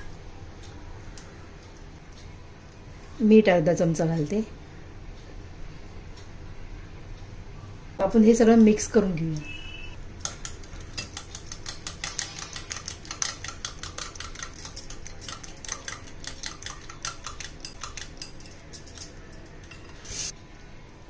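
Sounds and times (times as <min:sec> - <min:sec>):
whisk clicking against glass bowl: 0:10.2 - 0:19.8.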